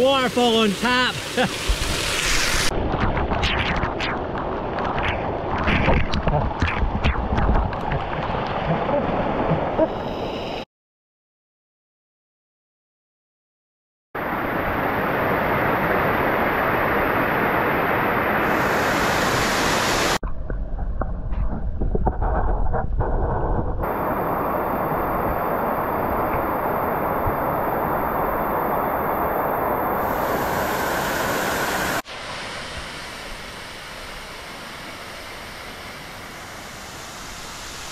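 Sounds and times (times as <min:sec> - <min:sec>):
waterfall rushing: 0:00.0 - 0:02.7, 0:23.9 - 0:33.6.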